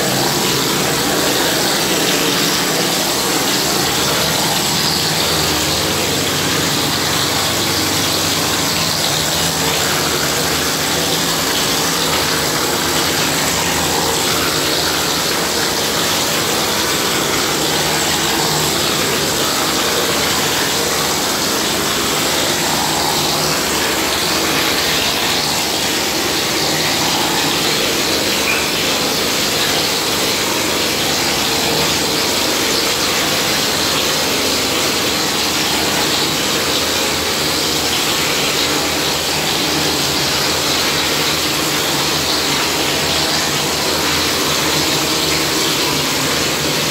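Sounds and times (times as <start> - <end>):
plaster spraying machine drone: 0.0 - 46.9.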